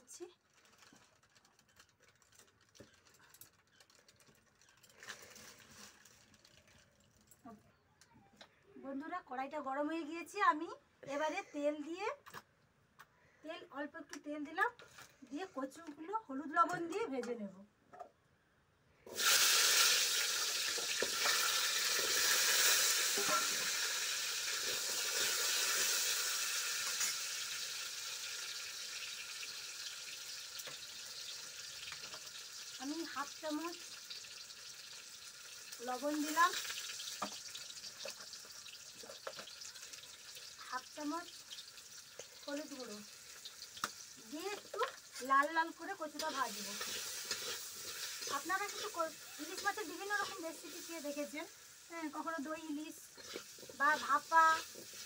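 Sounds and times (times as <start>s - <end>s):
food sizzling in hot oil: 19.1s - 55.0s
wood fire crackling: 19.1s - 55.0s.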